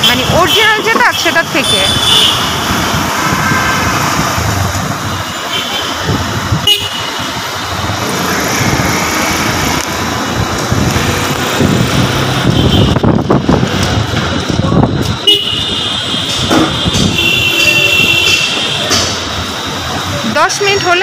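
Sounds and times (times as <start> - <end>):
vehicle horns: 0.0 - 3.7, 5.0 - 7.5, 12.4 - 13.2, 15.2 - 19.2
bus and motorcycle engines: 0.0 - 21.0.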